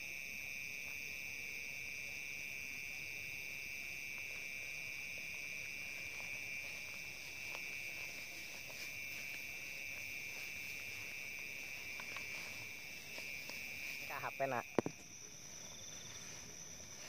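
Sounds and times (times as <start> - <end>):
night insects trilling: 0.0 - 17.0
footsteps through tall grass: 4.2 - 14.5, 15.1 - 17.0.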